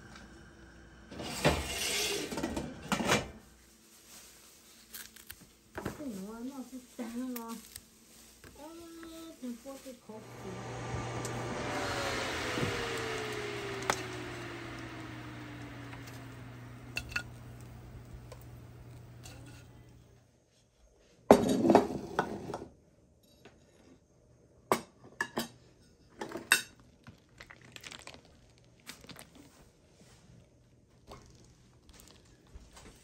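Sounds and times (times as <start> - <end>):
grill fan whirring: 10.1 - 20.2.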